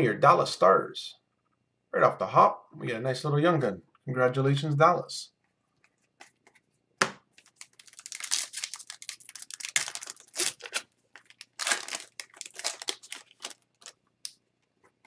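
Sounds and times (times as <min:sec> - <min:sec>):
foil wrapper crinkling: 0:07.3 - 0:14.3.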